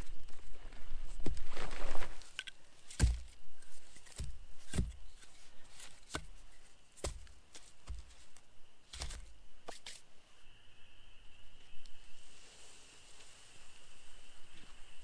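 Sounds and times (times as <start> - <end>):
logs shifting: 0.0 - 10.0
dull wooden knocks: 2.9 - 3.4.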